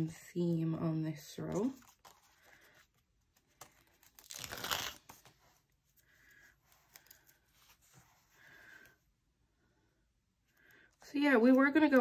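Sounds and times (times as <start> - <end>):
paper handling: 1.5 - 6.0.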